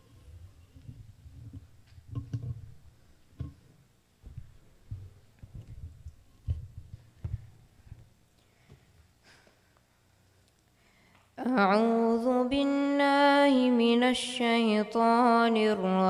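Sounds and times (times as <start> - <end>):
microphone clicks: 4.2 - 8.1
microphone handling thumps: 4.2 - 8.1.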